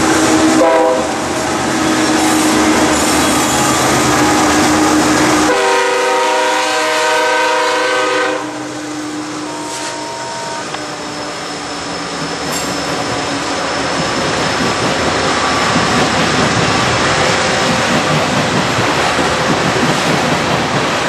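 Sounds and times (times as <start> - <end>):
diesel locomotive engines: 0.0 - 21.0
train wheels rumbling on rails: 0.0 - 21.0
train air horn: 0.1 - 1.2, 1.9 - 11.1.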